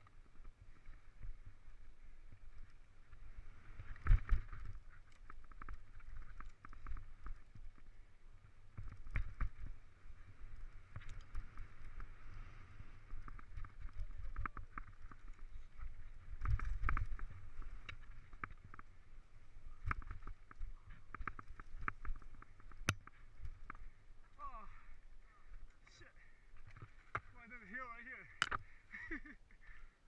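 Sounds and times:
bike clattering and rattling: 0:02.2 - 0:24.3.

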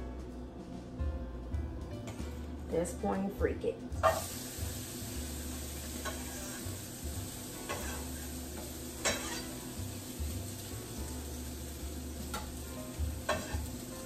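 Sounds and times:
onion sizzling in hot oil: 0:04.0 - 0:14.0.

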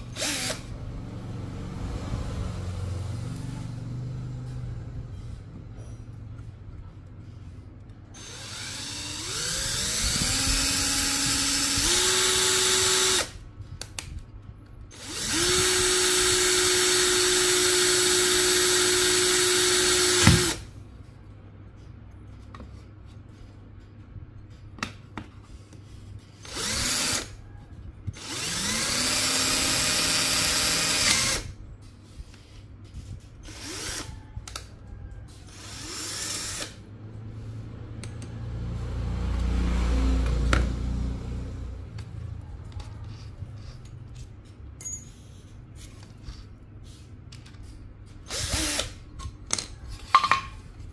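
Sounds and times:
drill boring into bone: 0:00.0 - 0:00.6, 0:08.2 - 0:13.3, 0:14.9 - 0:20.6, 0:26.4 - 0:27.3, 0:28.2 - 0:31.4, 0:33.4 - 0:34.1, 0:35.5 - 0:36.8, 0:48.3 - 0:49.0.

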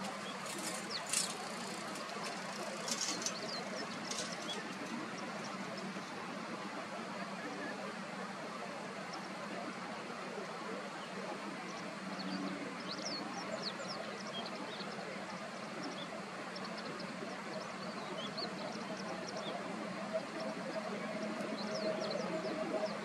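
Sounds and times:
small birds chirping: 0:00.0 - 0:06.2, 0:11.0 - 0:23.0.

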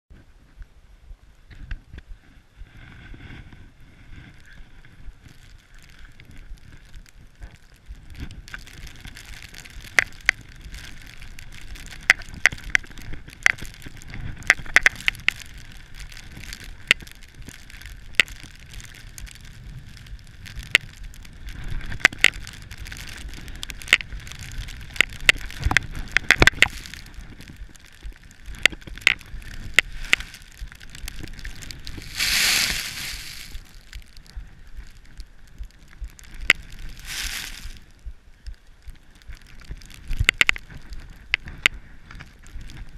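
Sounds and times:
skis rushing through powder snow: 0:22.6 - 0:33.9, 0:36.6 - 0:37.9.

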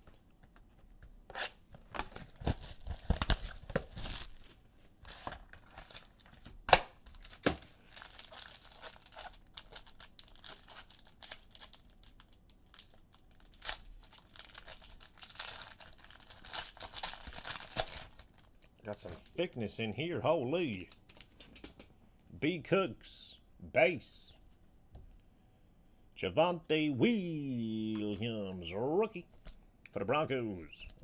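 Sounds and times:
wrappers tearing and crinkling: 0:02.1 - 0:06.5, 0:07.1 - 0:18.7.

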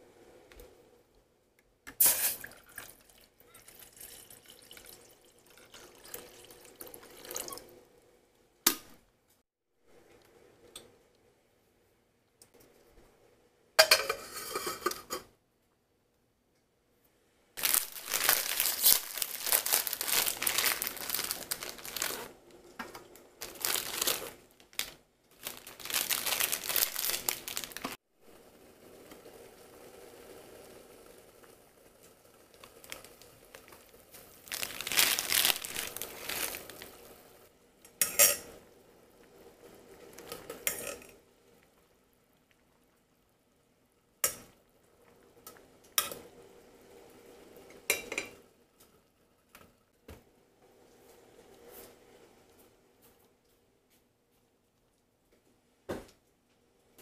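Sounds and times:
water boiling and bubbling: 0:01.9 - 0:08.2, 0:17.6 - 0:52.9
packet crinkling and rustling: 0:17.6 - 0:22.4, 0:23.4 - 0:28.0, 0:32.5 - 0:37.1.

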